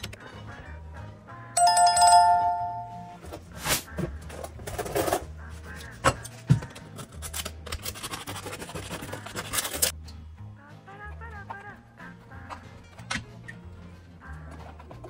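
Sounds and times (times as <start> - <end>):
soft background music: 0.0 - 15.0
two-tone electronic chime: 1.6 - 3.2
knife cutting crusty bread: 6.9 - 9.9.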